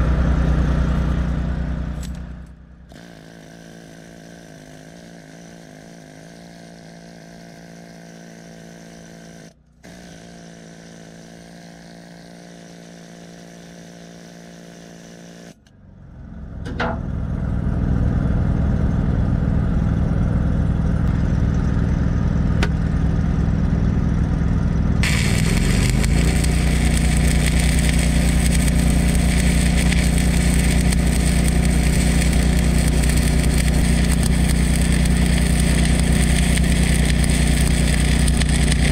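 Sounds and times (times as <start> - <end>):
welding machine engine running: 0.0 - 15.6, 17.4 - 38.9
welding arc crackling: 2.8 - 15.4, 25.0 - 38.9.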